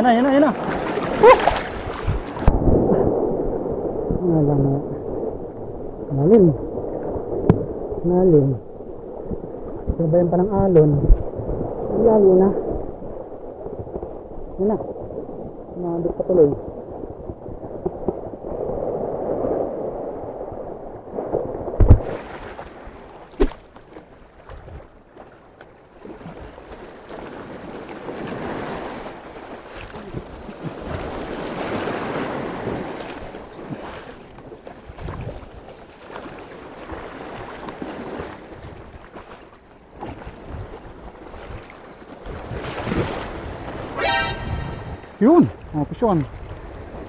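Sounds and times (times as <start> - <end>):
wind on the microphone: 0.0 - 23.6, 24.3 - 25.0, 26.0 - 39.3, 40.0 - 47.0
waves breaking over rocks: 0.0 - 47.0.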